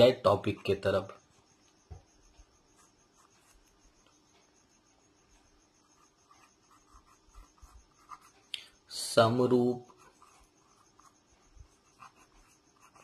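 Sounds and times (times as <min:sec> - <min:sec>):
pen scratching on paper: 0:02.2 - 0:03.8, 0:05.8 - 0:08.5, 0:09.8 - 0:13.0.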